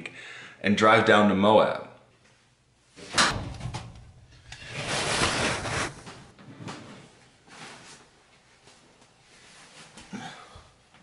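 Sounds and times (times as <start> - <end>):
clothes rustling: 4.6 - 6.4.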